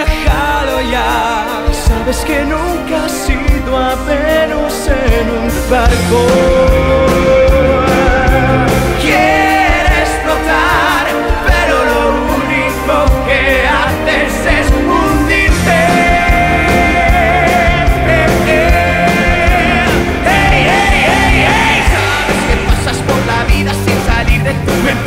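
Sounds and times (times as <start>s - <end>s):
pop-rock song with man singing: 0.0s - 25.0s.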